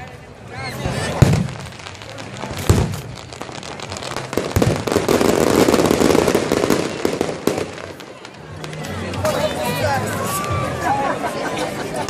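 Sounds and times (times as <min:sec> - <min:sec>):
fireworks bursting and crackling: 0:00.0 - 0:10.6
firework bang: 0:01.1 - 0:08.0.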